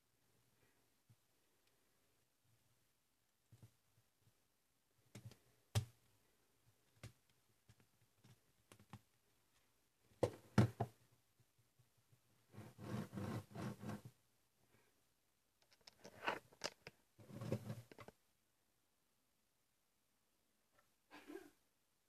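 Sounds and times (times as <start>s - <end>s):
plastic parts clicking and knocking: 15.6s - 18.2s.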